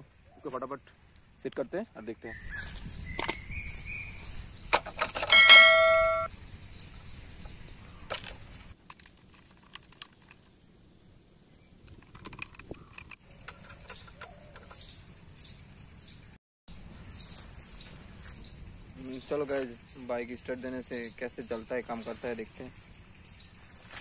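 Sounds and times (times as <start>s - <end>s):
bird chirping: 2.2s - 8.2s, 12.6s - 23.9s
notification bell ding: 5.3s - 6.3s.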